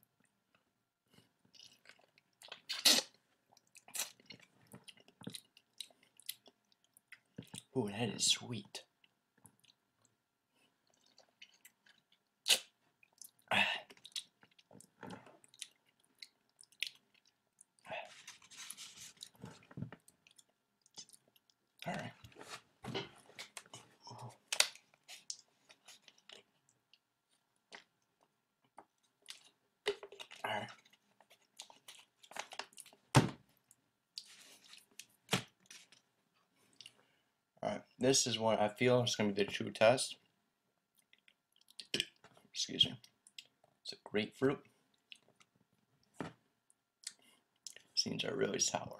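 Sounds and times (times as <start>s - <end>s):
person chewing and sucking: 1.5s - 7.7s, 10.8s - 22.6s, 24.1s - 33.0s
plastic bottle crinkling and clicking: 31.7s - 33.4s.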